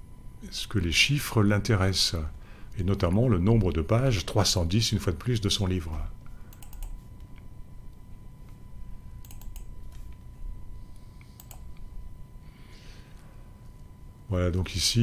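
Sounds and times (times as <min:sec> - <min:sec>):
faint steady hum: 0:00.0 - 0:15.0
computer keyboard and mouse clicks: 0:06.5 - 0:07.4, 0:09.2 - 0:10.1, 0:11.3 - 0:11.8.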